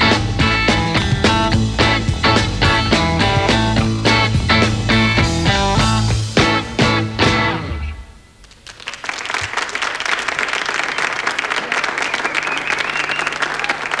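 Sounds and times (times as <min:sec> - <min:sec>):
audience applauding: 0:08.4 - 0:14.0.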